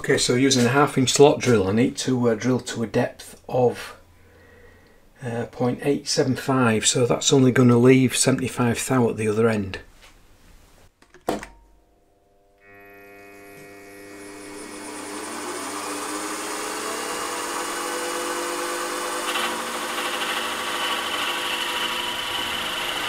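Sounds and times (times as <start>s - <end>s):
drill cutting into metal: 12.6s - 23.0s
milling machine motor whine: 12.6s - 23.0s.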